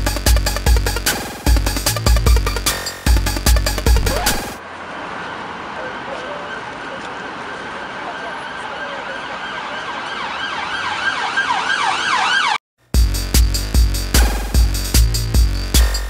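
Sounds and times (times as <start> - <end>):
electronic music with drum beat: 0.0 - 4.6, 13.0 - 16.0
street noise: 0.4 - 12.6
siren yelping: 3.8 - 4.6, 5.8 - 12.6.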